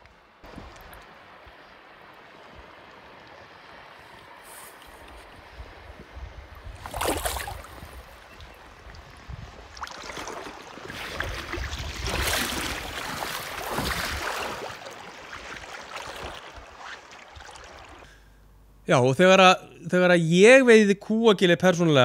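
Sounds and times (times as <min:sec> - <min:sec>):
river water splashing and lapping: 0:00.0 - 0:18.2
sharp splash: 0:06.8 - 0:18.1.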